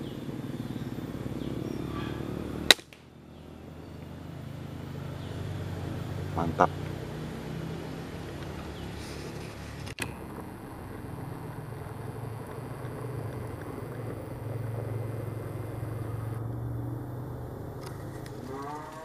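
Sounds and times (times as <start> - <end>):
distant engine humming: 0.0 - 19.0.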